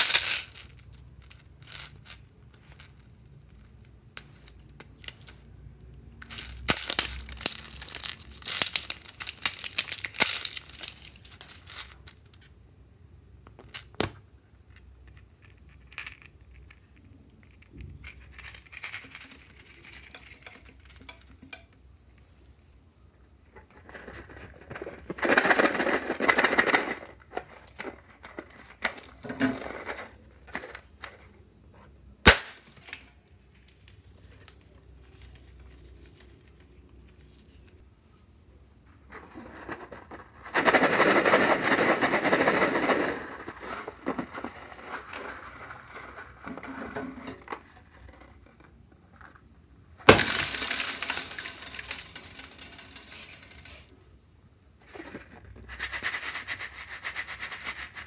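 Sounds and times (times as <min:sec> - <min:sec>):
plastic beads clattering into glass bowl: 0:00.0 - 0:03.0, 0:06.2 - 0:12.1, 0:50.1 - 0:53.9.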